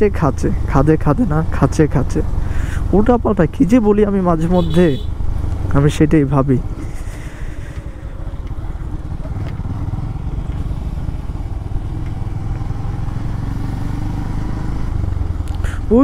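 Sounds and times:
motorcycle engine running: 6.7 - 16.0.

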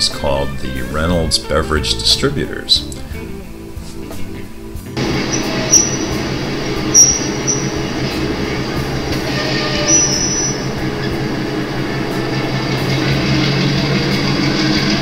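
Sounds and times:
high wheel squeals: 5.0 - 15.0
model train rolling: 5.0 - 15.0.

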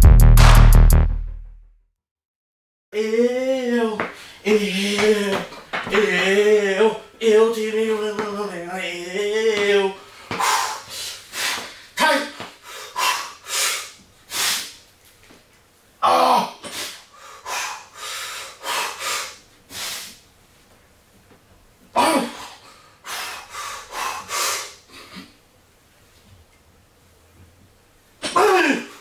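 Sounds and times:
person grunting: 3.0 - 7.0, 16.0 - 16.7, 22.0 - 22.6, 28.2 - 29.0
person breathing hard: 10.0 - 14.7, 16.6 - 20.2, 22.2 - 25.3.

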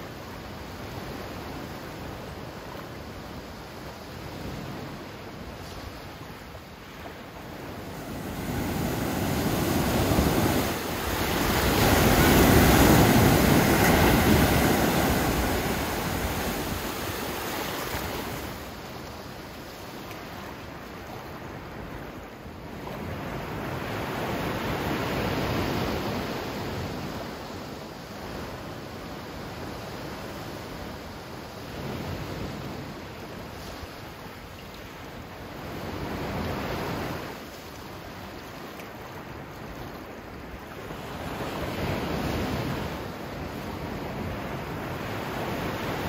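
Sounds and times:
sea water rushing and splashing: 0.0 - 26.9
wind on microphone: 0.0 - 34.4, 39.1 - 46.0.

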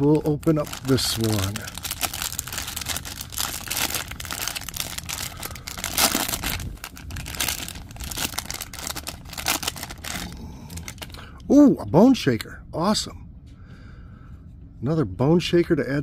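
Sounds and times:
foil bag ripping: 0.0 - 11.2
plastic foil crinkling: 0.0 - 11.2.

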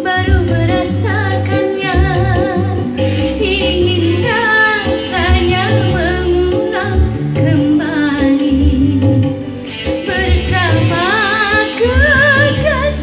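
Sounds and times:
backing music with bass beat: 0.0 - 13.0
woman singing into a microphone: 0.0 - 13.0.

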